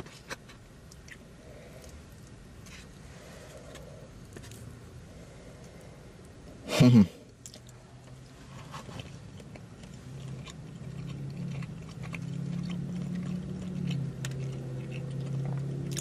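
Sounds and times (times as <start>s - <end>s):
low steady hum: 0.0s - 16.0s
close chewing of food: 7.4s - 16.0s.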